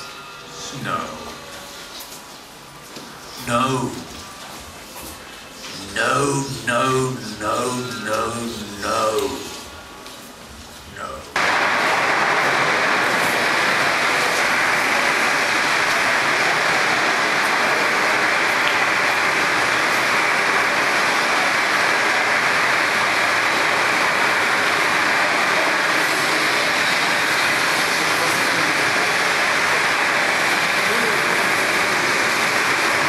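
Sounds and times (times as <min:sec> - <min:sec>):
loud rushing noise: 0:11.4 - 0:33.0.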